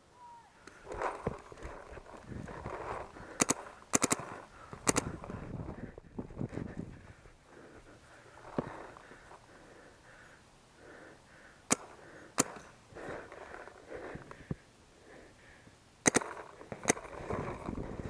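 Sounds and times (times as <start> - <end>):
wind noise: 0.8 - 3.4, 4.2 - 7.4, 16.8 - 18.0
paintball marker shots: 3.3 - 5.2, 11.7 - 12.7, 16.0 - 17.2.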